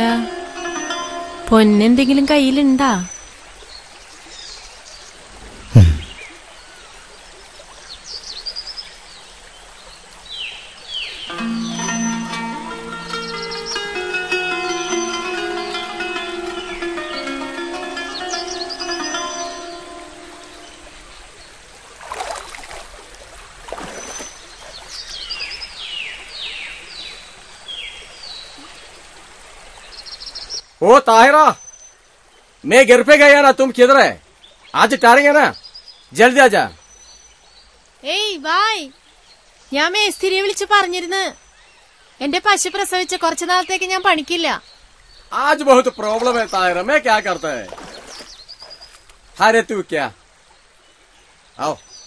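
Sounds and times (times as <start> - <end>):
birds chirping: 0.0 - 21.7, 23.8 - 29.0, 29.7 - 52.0
brief rushing swishes: 5.4 - 6.2
loud low thump falling in pitch: 5.7 - 6.2.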